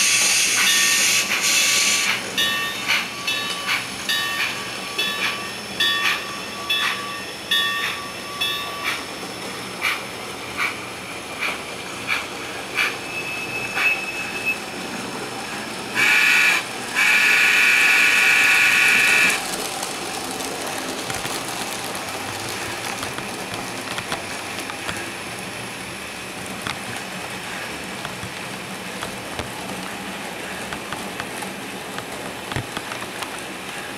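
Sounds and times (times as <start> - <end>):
model trains hissing and clicking: 0.0 - 33.9
model train whistle blasts: 16.0 - 19.4.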